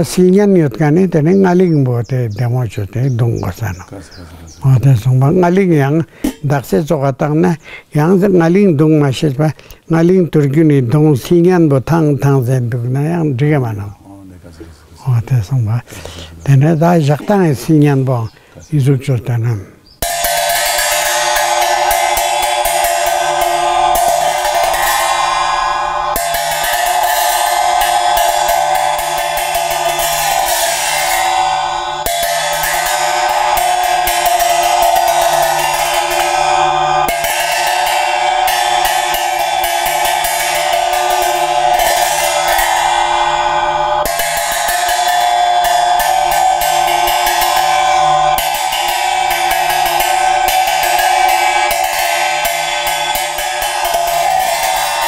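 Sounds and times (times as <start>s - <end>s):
ritual cymbals ringing: 0.0s - 14.6s, 20.0s - 55.0s.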